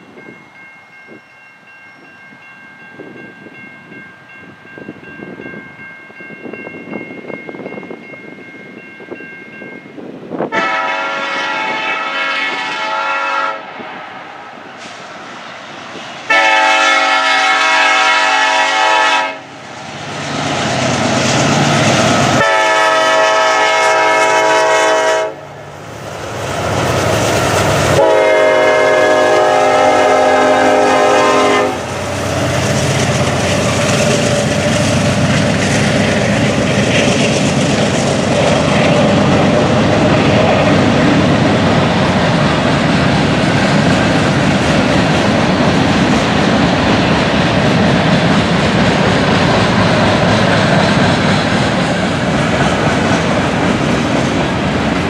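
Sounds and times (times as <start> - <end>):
passing locomotive rumble: 0.0 - 55.0
locomotive air horn blasts: 10.5 - 13.8, 16.3 - 19.6, 22.4 - 25.5, 28.0 - 31.9
rail cars clickety-clack: 14.6 - 55.0.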